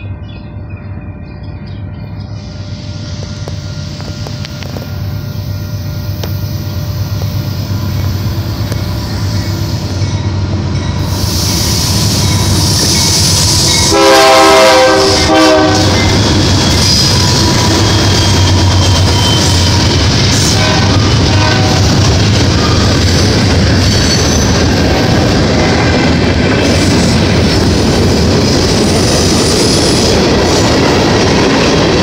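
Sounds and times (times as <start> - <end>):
freight train rumbling past: 0.0 - 32.0
locomotive air horn blast: 11.0 - 16.2, 20.4 - 22.0.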